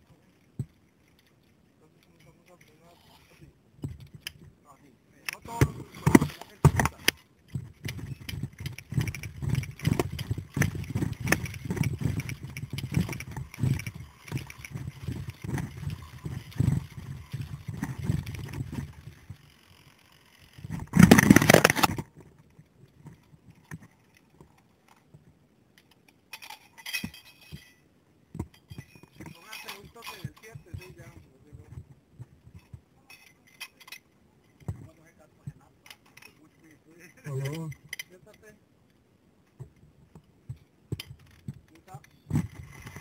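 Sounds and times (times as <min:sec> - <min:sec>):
zipline pulleys rattling on cable: 0:05.3 - 0:22.2, 0:25.9 - 0:27.9, 0:28.6 - 0:31.8
clatter: 0:05.5 - 0:19.5, 0:20.6 - 0:25.0.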